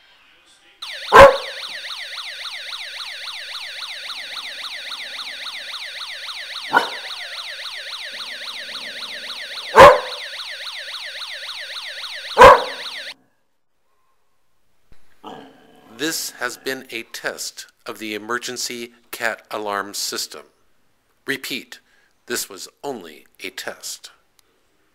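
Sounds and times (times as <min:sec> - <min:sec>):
siren wailing: 0:00.8 - 0:13.2
dog barking: 0:01.1 - 0:01.6, 0:06.7 - 0:07.1, 0:09.7 - 0:10.2, 0:12.4 - 0:12.9.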